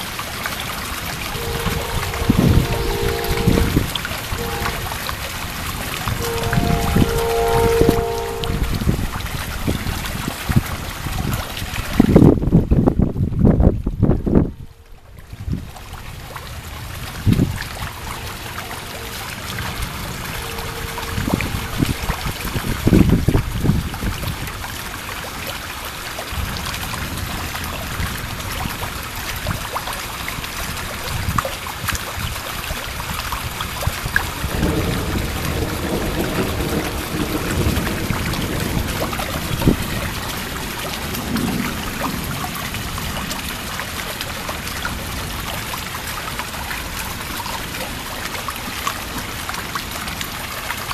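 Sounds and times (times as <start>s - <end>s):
heavy rain falling: 0.0s - 50.9s
thunder rumbling: 0.6s - 24.7s, 34.3s - 43.8s.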